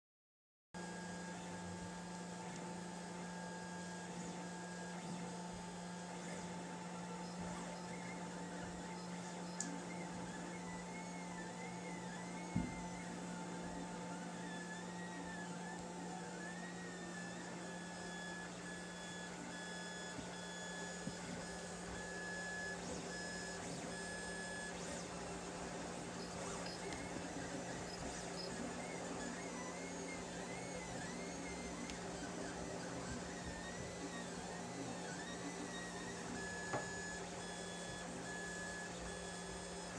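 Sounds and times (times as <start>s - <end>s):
printer low hum: 0.8s - 39.9s
stepper motors whining: 3.3s - 39.9s.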